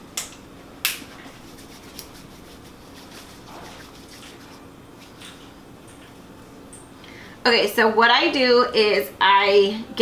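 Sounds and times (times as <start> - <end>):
faint steady hum: 0.0 - 10.0
hands rubbing: 1.2 - 5.4.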